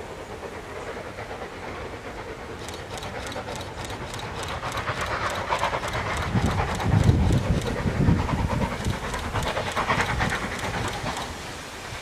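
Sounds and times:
steam locomotive exhaust chuffing: 0.0s - 12.0s.

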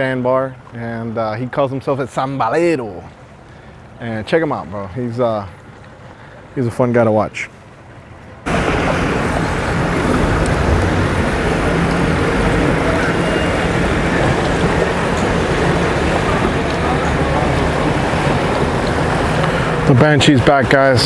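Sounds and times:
motorboat engine running: 7.6s - 21.0s
wind on microphone: 8.5s - 21.0s.

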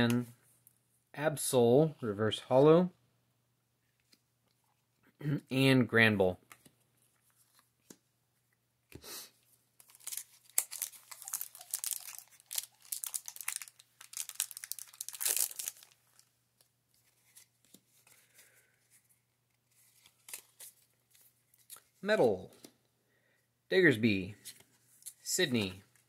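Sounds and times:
foil wrapper crinkling: 9.8s - 16.3s.

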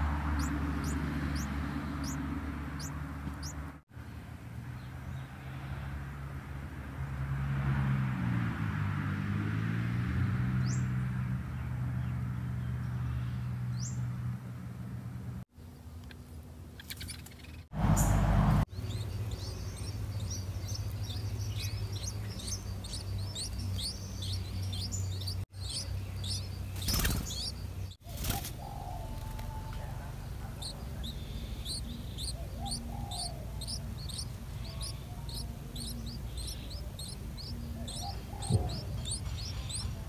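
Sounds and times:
nestlings chirping: 0.0s - 3.8s, 16.0s - 40.0s
steady low hum: 29.6s - 40.0s.

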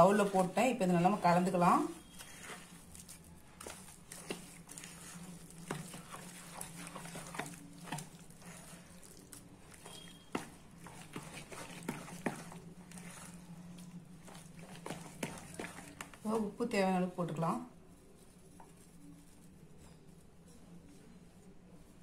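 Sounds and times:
spoon scraping plastic bowl: 0.0s - 16.2s
wet mixture squelching: 0.0s - 17.1s.

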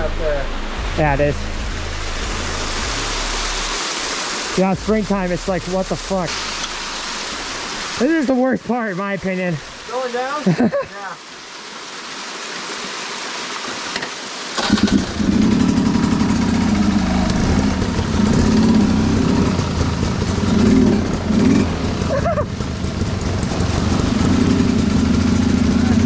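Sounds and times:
creek water rushing: 0.0s - 26.0s
dirt bike engine revving: 14.6s - 26.0s.

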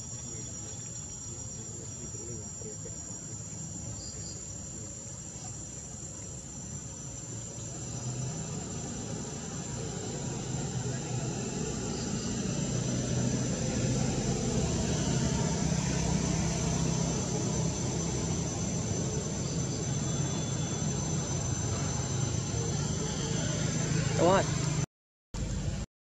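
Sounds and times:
high-pitched insect chorus: 0.0s - 24.8s
distant engine drone: 0.0s - 25.8s.

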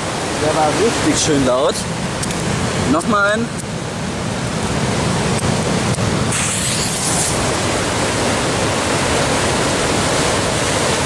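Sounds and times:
sea surf rushing: 0.0s - 11.0s
brief high hiss: 6.3s - 7.4s.

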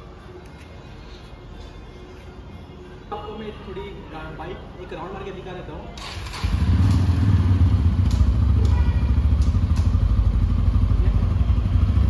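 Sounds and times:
motorcycle engine idling: 6.4s - 12.0s.

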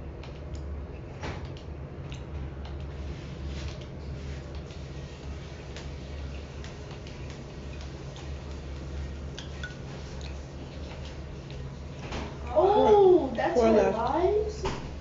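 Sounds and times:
steady low hum: 0.0s - 15.0s
mouth clicks while chewing: 1.4s - 2.8s.

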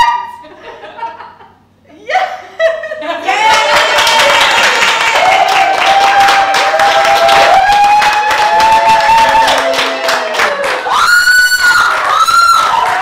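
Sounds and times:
audience clapping and cheering: 3.2s - 13.0s
people whooping: 3.2s - 13.0s.

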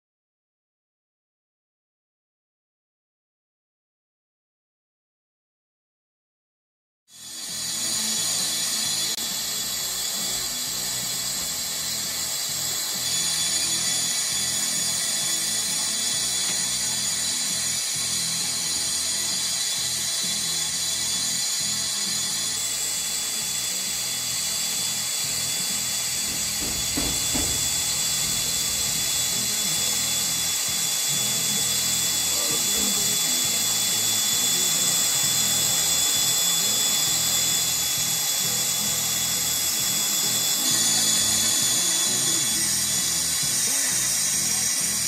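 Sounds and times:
torch flame hissing: 8.8s - 37.7s.

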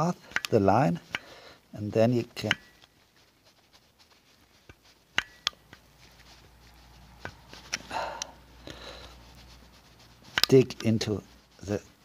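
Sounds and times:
sharp metallic clicks: 0.3s - 1.3s.

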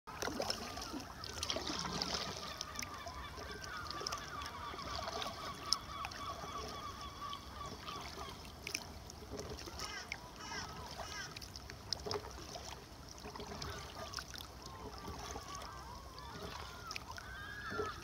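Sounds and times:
birds calling: 0.8s - 8.4s.

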